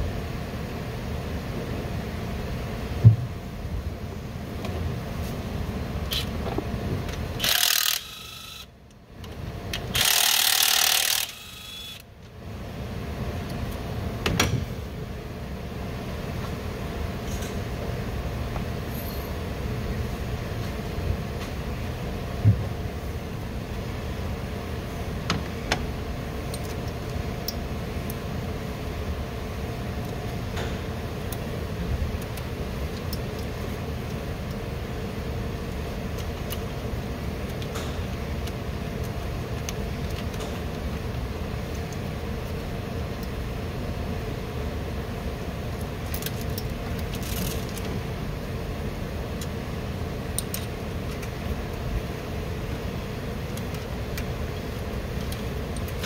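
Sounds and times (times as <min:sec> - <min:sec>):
workshop background hum: 0:00.0 - 0:56.0.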